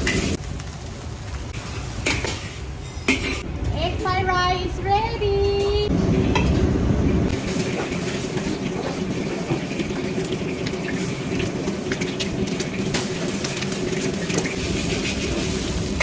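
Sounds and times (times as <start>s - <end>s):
eggs sizzling in hot oil: 0.0s - 3.4s, 7.3s - 16.0s.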